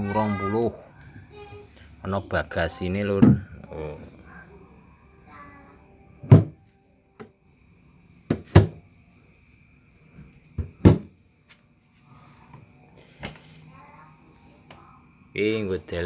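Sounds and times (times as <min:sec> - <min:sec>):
wooden cabinet doors knocking: 0:03.2 - 0:03.5, 0:06.2 - 0:06.6, 0:08.3 - 0:08.8, 0:10.6 - 0:11.1.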